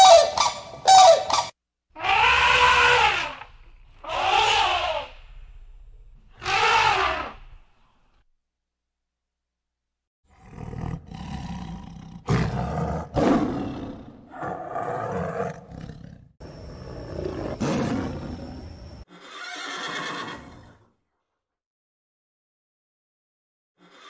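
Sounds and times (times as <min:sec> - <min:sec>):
tiger roaring and growling: 0:02.0 - 0:07.7, 0:10.3 - 0:19.0.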